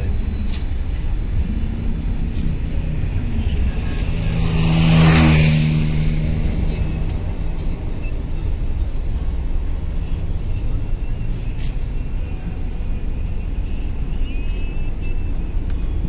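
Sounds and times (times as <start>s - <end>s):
low rumble of traffic: 0.0s - 16.0s
vehicle passing by: 1.2s - 9.1s.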